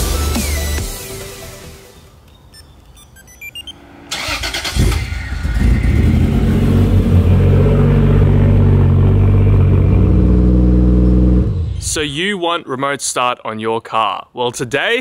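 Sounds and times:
short electronic beeps: 2.4s - 3.8s
car engine starting and idling: 3.5s - 12.0s.

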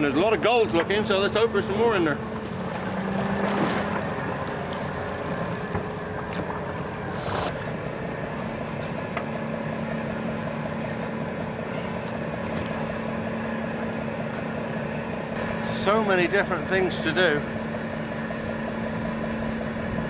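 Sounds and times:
boat engine running: 0.0s - 20.0s
short rush of noise: 7.1s - 7.5s.

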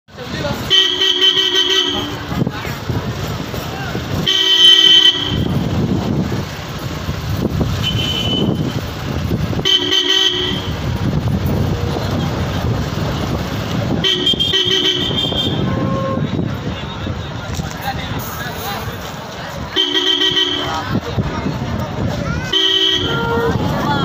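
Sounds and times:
traffic and engine noise: 0.0s - 24.0s
vehicle horn honking: 0.6s - 2.4s, 4.2s - 5.8s, 7.7s - 8.8s, 9.6s - 10.9s, 14.0s - 16.3s, 19.8s - 20.9s, 22.5s - 23.7s.

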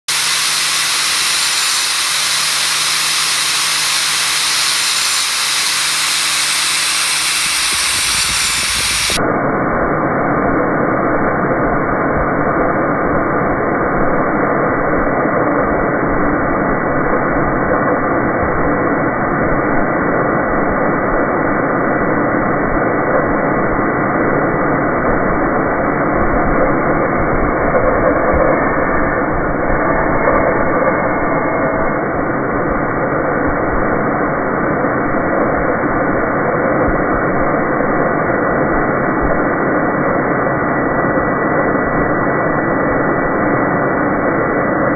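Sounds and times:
grinding wheel whirring: 0.0s - 9.2s
wheel grinding on steel: 0.1s - 9.2s.

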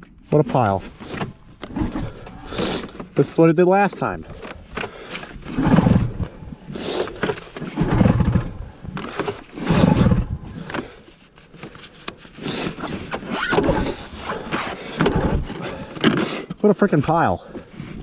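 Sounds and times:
pull-starter rope whirring: 4.5s - 11.0s, 12.3s - 16.6s.

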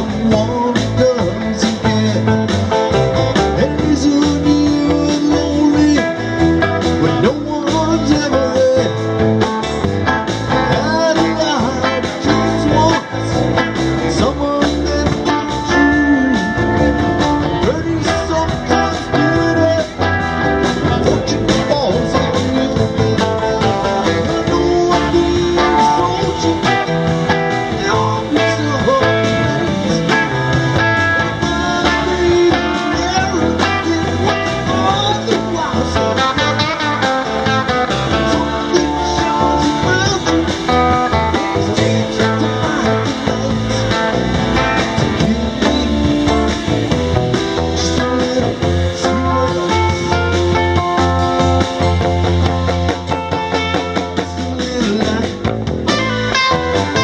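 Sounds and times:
rock band playing live: 0.0s - 57.0s.

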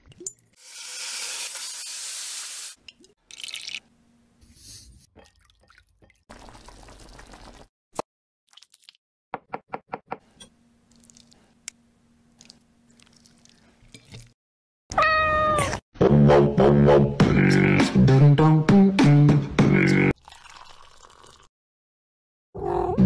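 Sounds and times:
cat meowing: 14.9s - 15.8s
music: 16.0s - 20.1s.

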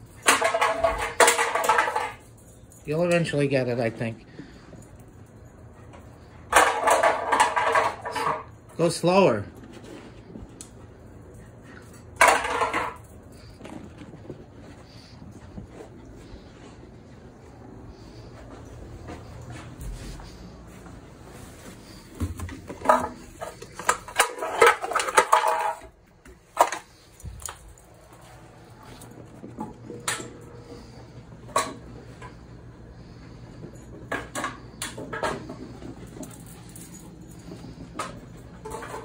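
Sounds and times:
can clattering on tiled floor: 0.1s - 2.4s, 6.5s - 8.5s, 12.0s - 13.5s, 22.2s - 25.9s.

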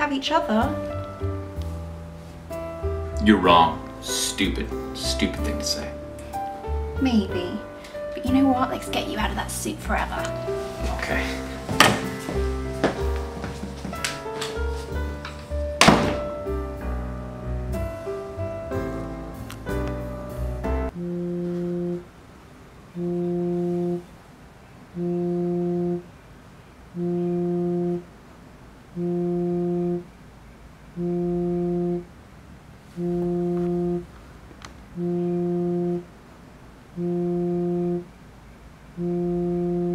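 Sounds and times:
phone vibrating on wood: 21.0s - 22.0s, 23.0s - 24.1s, 25.0s - 26.0s, 27.0s - 28.0s, 29.0s - 30.0s, 31.0s - 32.1s, 33.0s - 34.1s, 35.0s - 36.0s, 37.0s - 38.1s, 39.0s - 39.9s.

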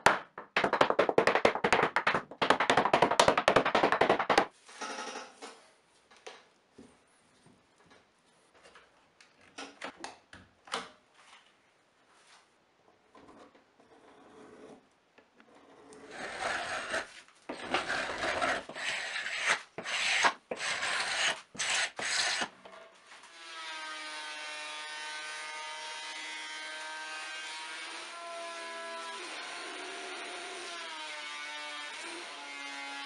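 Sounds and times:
wood rubbing and scraping: 16.0s - 22.5s.

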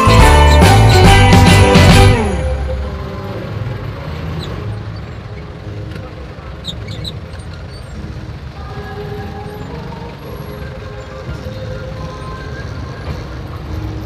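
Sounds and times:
distant music: 0.0s - 4.7s
low rumble of traffic: 0.0s - 14.0s.

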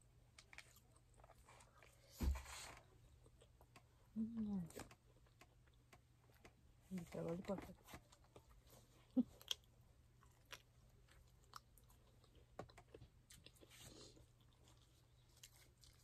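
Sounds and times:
person chewing food: 8.0s - 16.0s.

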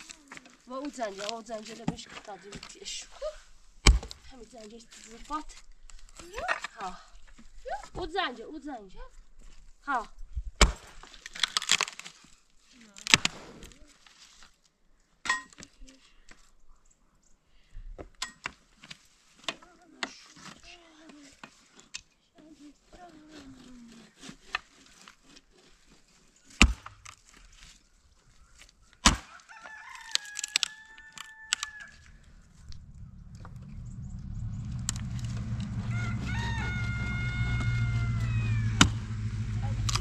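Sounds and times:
wood being chopped: 3.8s - 4.2s, 10.6s - 12.0s, 26.5s - 27.2s, 29.0s - 30.7s, 38.8s - 39.2s
rooster crowing: 29.3s - 33.8s, 34.4s - 39.6s
vehicle engine rumble: 31.9s - 40.0s.

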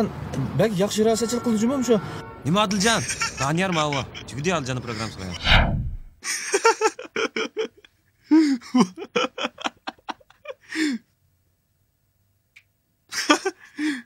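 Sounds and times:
man laughing: 2.8s - 5.4s, 6.2s - 11.0s, 13.1s - 14.0s.

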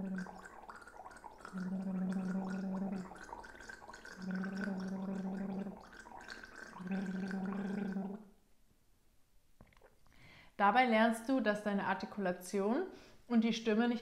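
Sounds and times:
woman humming while gargling: 0.0s - 0.4s, 1.5s - 3.2s, 4.1s - 5.8s, 6.8s - 8.2s
woman gargling water: 0.0s - 8.3s.

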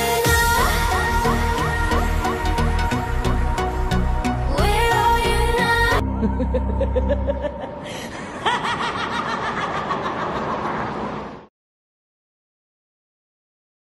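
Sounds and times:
electronic music: 0.0s - 7.8s
voice cackling: 6.0s - 11.1s.

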